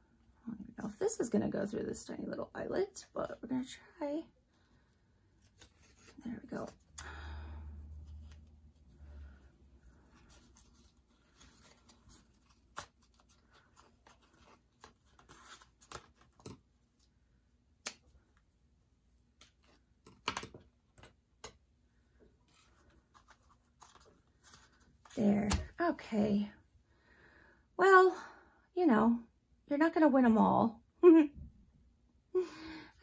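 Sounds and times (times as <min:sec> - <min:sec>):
paper and twine rustling: 0:09.9 - 0:16.6, 0:22.5 - 0:25.6.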